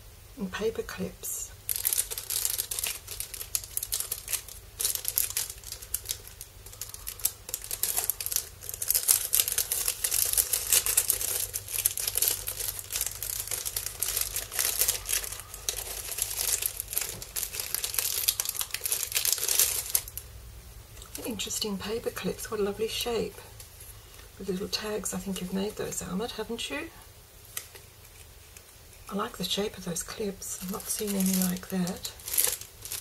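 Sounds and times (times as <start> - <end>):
cellophane packet crinkling: 1.5 - 20.3, 30.4 - 33.0.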